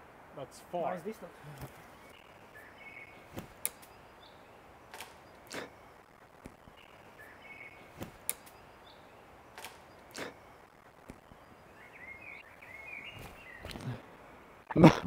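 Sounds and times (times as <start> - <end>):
faint bird chirps: 1.8 - 14.5.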